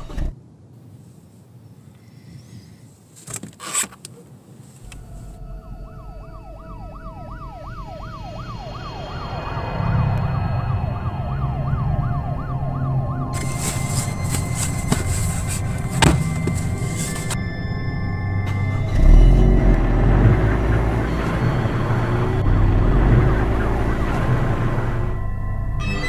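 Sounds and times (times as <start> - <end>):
police siren yelping: 4.8 - 17.4, 18.4 - 26.0
low rumble: 4.8 - 26.0.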